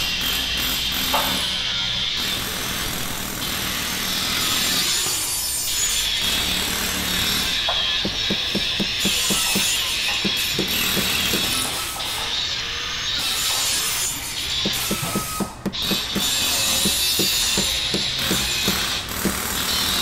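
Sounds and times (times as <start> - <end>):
angle grinder cutting metal: 3.7 - 20.0.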